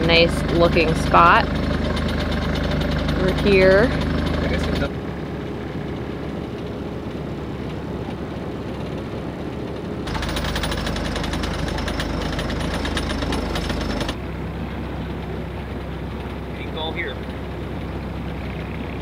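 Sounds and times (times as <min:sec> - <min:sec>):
rapid mechanical rattle: 0:00.0 - 0:14.2
boat engine running: 0:00.0 - 0:19.0.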